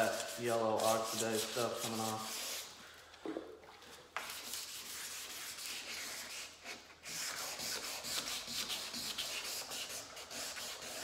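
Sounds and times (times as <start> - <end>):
sandpaper scraping plastic: 0.0 - 2.7.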